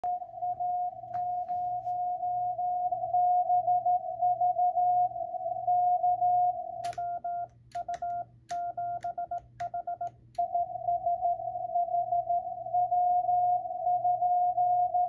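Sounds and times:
morse code tones: 6.4 - 12.2.

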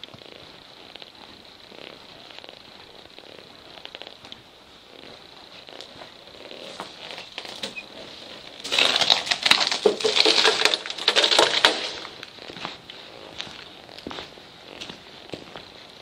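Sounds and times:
footsteps crunching over debris: 4.0 - 16.0.

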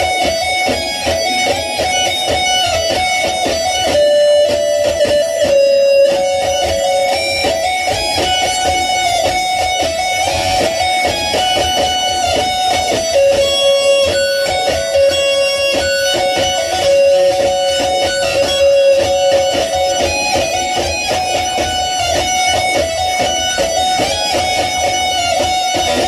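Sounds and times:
electric guitar playing: 0.0 - 26.0.

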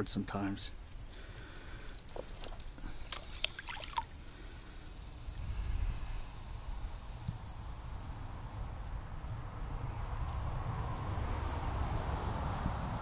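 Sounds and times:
steady high hiss: 0.0 - 10.5
wind rumble on microphone: 5.3 - 13.0.

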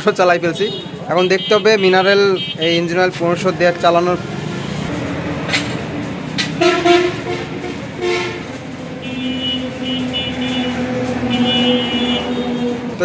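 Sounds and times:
vehicle horn: 0.0 - 3.1, 6.6 - 13.0.

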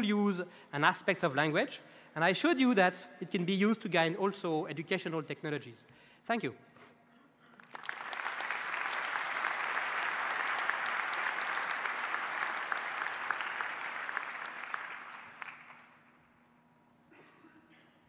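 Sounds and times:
audience applauding: 7.5 - 16.1.

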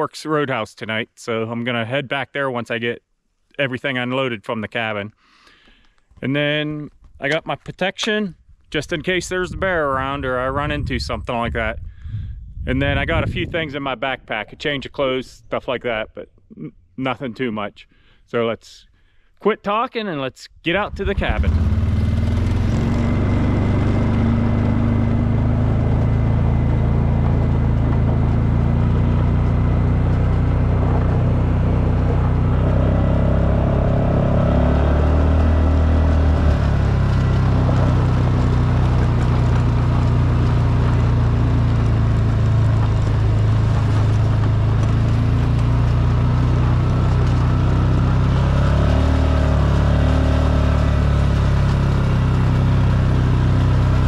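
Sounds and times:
atv engine running: 20.9 - 54.0.

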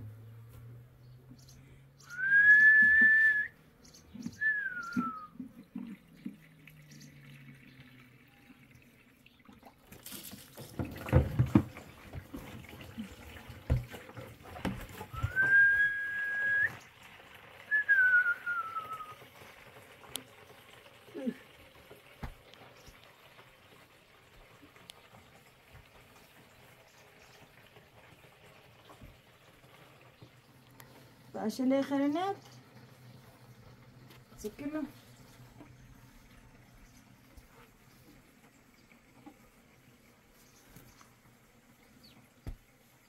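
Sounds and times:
person whistling: 2.1 - 3.6, 4.4 - 5.3, 15.2 - 16.8, 17.7 - 19.2.

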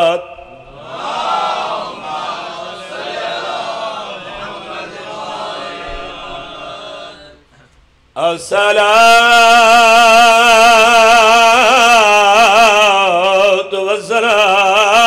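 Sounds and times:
men chanting in unison: 0.0 - 7.4
man singing through a microphone: 8.2 - 15.0.

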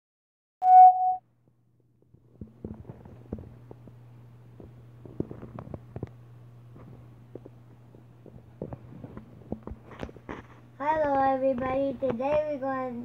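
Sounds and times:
short electronic beep: 0.6 - 1.2
low steady hum: 0.7 - 13.0.

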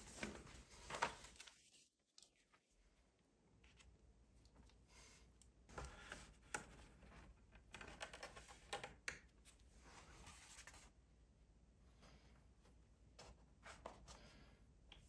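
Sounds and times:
paper rustling and sliding: 0.0 - 2.0.

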